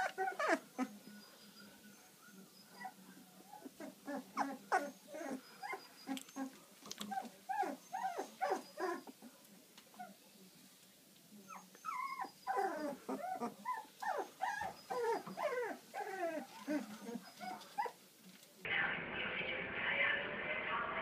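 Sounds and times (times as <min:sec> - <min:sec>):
puppies whimpering: 0:00.0 - 0:09.3, 0:11.4 - 0:18.0.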